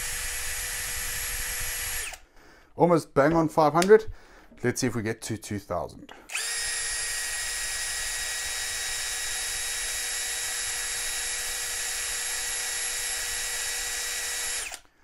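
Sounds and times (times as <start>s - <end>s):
cordless drill whining: 0.0s - 2.3s, 6.1s - 15.0s.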